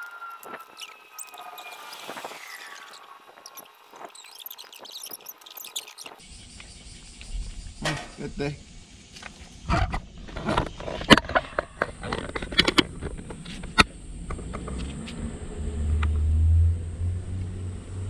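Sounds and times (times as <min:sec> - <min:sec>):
passing vehicle engine rumble: 0:14.0 - 0:18.0.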